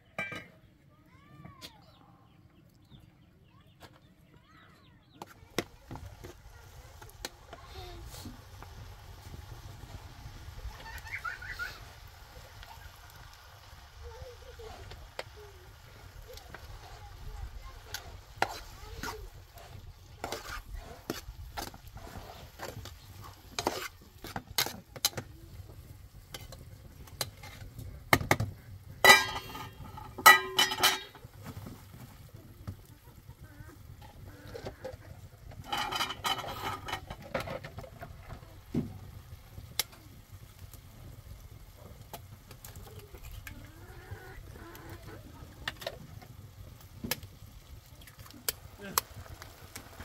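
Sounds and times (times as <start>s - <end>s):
utensils clanking against pan: 0.2s - 0.6s, 17.8s - 25.3s, 26.2s - 31.3s, 34.0s - 38.0s
spoon stirring in frying pan: 5.1s - 43.8s
taps and scrapes on pan: 17.8s - 25.3s, 26.2s - 31.7s, 34.0s - 38.9s.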